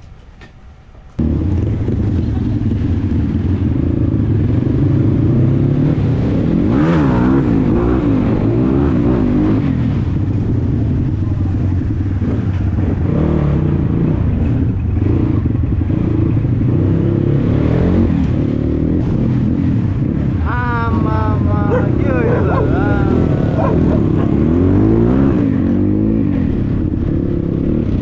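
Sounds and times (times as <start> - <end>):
dirt bike engine revving: 21.0 - 28.0.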